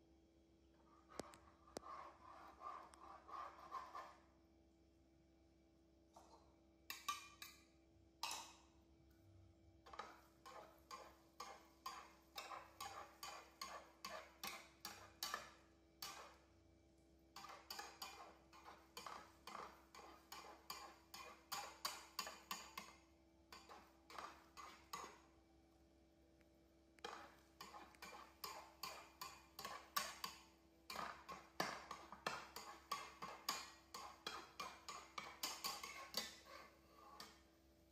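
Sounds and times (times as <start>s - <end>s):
metal spatula scraping a frying pan: 0.8s - 4.3s, 9.9s - 16.5s, 17.4s - 22.9s, 23.5s - 25.3s, 27.0s - 37.5s.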